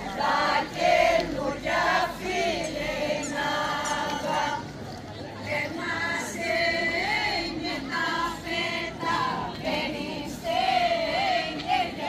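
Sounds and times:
group singing unaccompanied: 0.0s - 4.8s, 5.4s - 12.0s.

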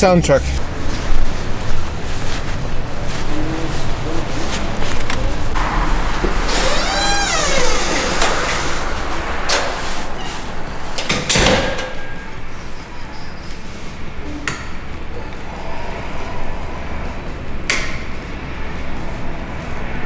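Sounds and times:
steady background noise: 0.0s - 20.0s
metal gate and door clicking: 6.5s - 12.3s.

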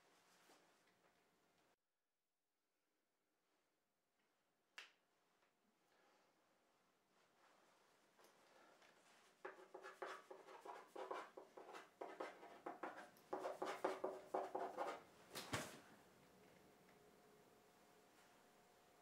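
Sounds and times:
pen scribbling on paper: 9.5s - 15.0s.

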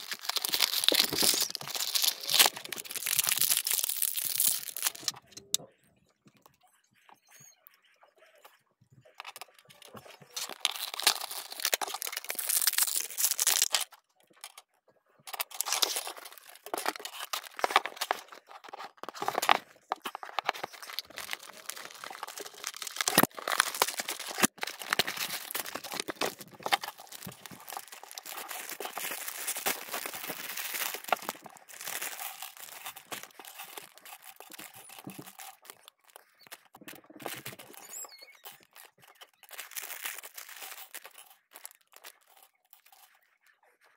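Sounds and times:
crinkling plastic wrapping: 0.0s - 5.2s, 10.2s - 13.9s, 15.3s - 43.1s
cardboard box tearing: 20.2s - 32.7s.

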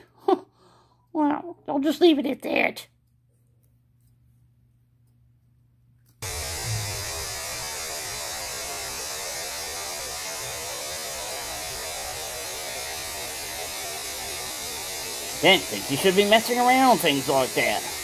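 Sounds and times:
electrical hum with static hiss: 5.6s - 18.0s.

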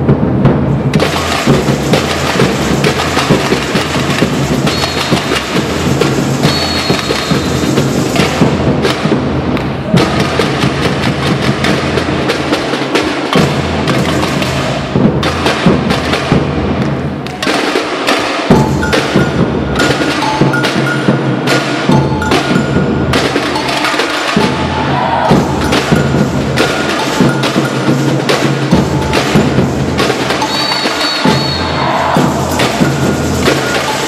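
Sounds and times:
samba drumming: 0.0s - 34.0s
whistle blowing: 4.6s - 5.4s, 6.4s - 7.7s, 30.4s - 32.0s
metal bells ringing: 18.5s - 24.5s, 25.4s - 29.7s, 30.4s - 31.4s, 32.4s - 34.0s.

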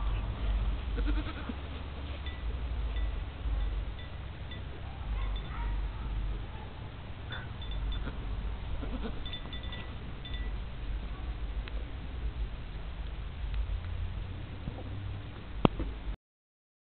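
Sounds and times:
wind rumble on microphone: 0.0s - 16.2s
goat bleating: 1.0s - 1.6s, 7.9s - 9.2s
wind chimes ringing: 2.2s - 5.8s, 7.3s - 8.3s, 9.1s - 10.7s.

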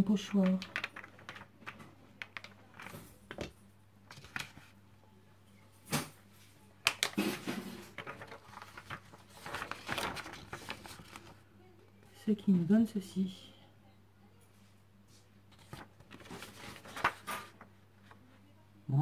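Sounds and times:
paper rustling: 0.4s - 3.5s, 4.1s - 4.7s, 6.8s - 11.4s, 15.2s - 18.2s.

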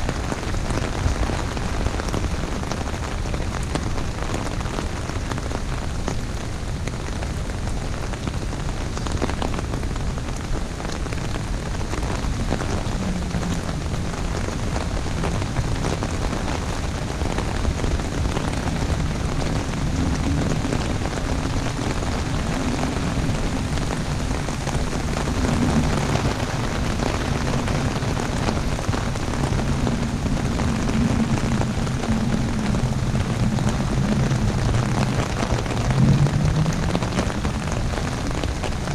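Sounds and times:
rain drumming on an umbrella: 0.0s - 38.9s
low wavering hum: 12.0s - 16.8s, 17.8s - 38.8s.

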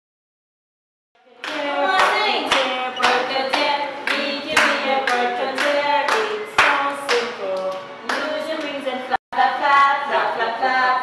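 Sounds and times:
person singing children's song: 1.2s - 11.0s
steady clapping: 1.4s - 8.8s.

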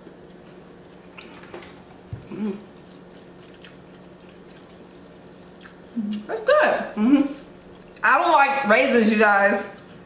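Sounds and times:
chewing: 0.0s - 6.3s
person humming: 2.2s - 2.7s, 7.0s - 7.4s.

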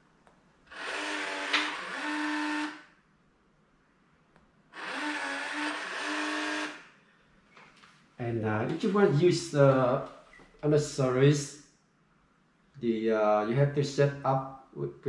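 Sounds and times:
lock motor whirring: 0.7s - 2.9s, 4.8s - 6.8s.

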